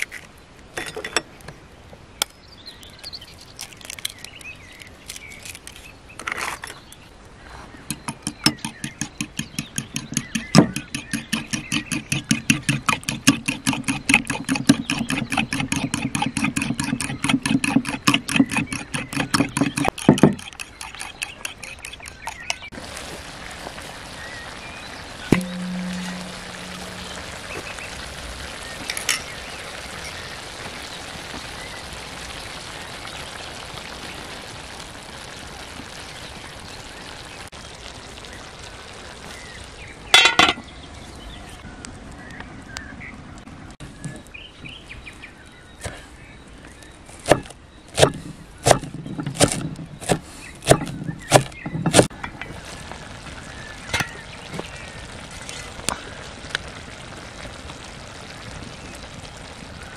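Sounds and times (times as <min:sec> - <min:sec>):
food sizzling in a pan: 0:21.5 - 0:40.4, 0:52.1 - 0:59.9.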